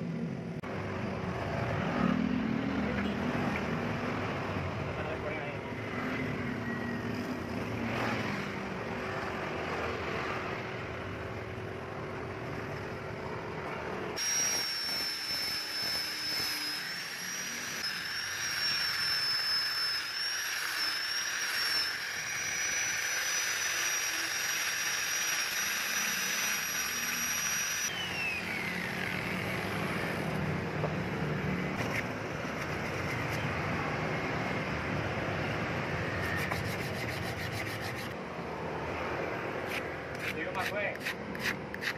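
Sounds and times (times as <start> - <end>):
angle grinder sanding whine: 14.2 - 31.0, 36.0 - 38.2.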